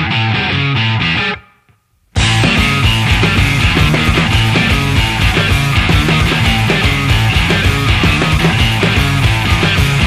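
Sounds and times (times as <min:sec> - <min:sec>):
distorted electric guitar and bass: 0:00.0 - 0:10.0
hard-hitting drum beat: 0:02.2 - 0:10.0.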